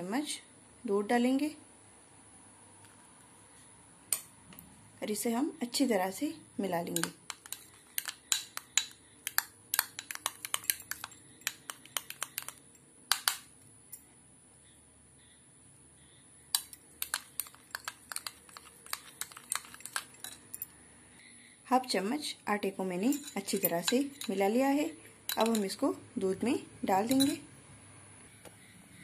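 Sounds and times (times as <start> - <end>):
spoon scraping a bowl: 6.9 - 12.8, 16.6 - 20.7, 23.0 - 25.8, 27.0 - 27.4.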